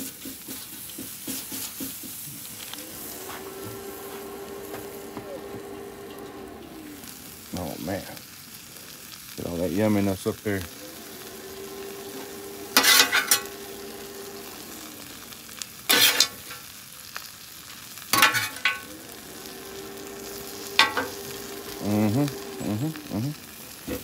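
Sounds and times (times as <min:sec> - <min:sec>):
food sizzling on a griddle: 0:00.0 - 0:24.0
metal spatula scraping steel plate: 0:12.8 - 0:13.5, 0:15.9 - 0:16.5, 0:18.2 - 0:18.8.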